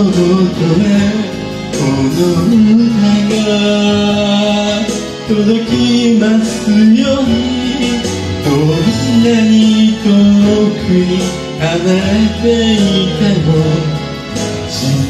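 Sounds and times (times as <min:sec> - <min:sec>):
instrumental accompaniment: 0:00.0 - 0:15.0
man singing slow melody: 0:00.0 - 0:15.0.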